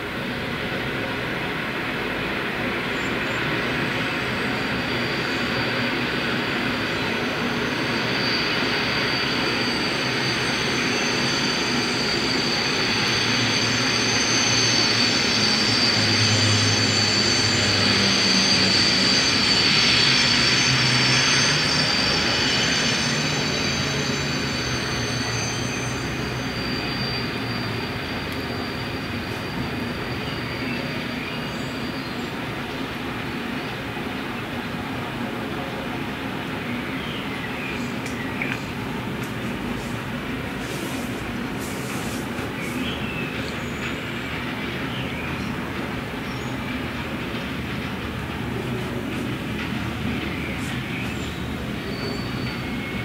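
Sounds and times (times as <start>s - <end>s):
freight train wheels rumbling: 0.0s - 53.0s
high-pitched whine: 0.1s - 33.4s.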